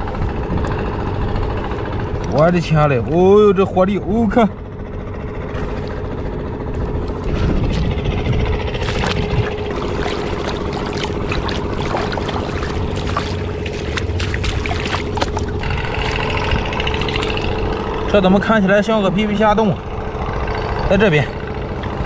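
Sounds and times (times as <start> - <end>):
water splashing and sloshing: 0.0 - 3.9, 4.9 - 18.2, 21.6 - 22.0
engine droning: 0.0 - 22.0
water dripping: 8.8 - 17.7.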